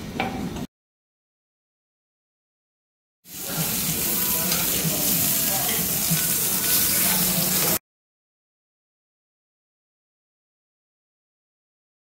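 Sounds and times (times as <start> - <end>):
meat sizzling on grill: 3.3 - 7.8.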